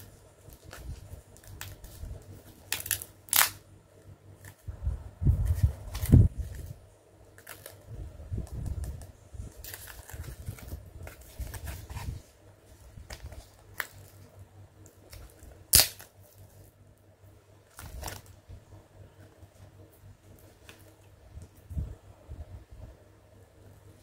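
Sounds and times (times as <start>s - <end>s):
sharp plastic snap: 15.7s - 16.1s.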